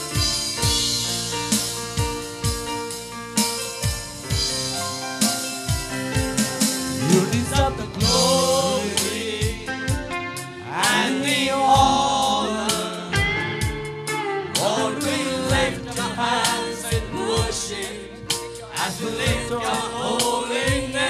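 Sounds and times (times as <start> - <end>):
drum beats: 0.0 - 21.0
person singing: 6.9 - 21.0.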